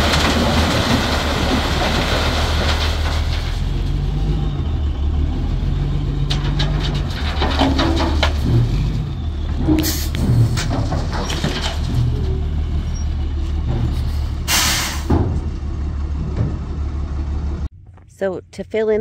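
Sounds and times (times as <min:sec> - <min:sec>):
knocks and rattles: 0:00.0 - 0:04.2, 0:06.1 - 0:14.4, 0:15.0 - 0:18.1
diesel truck engine running: 0:00.0 - 0:17.9
air hissing burst: 0:14.5 - 0:15.1.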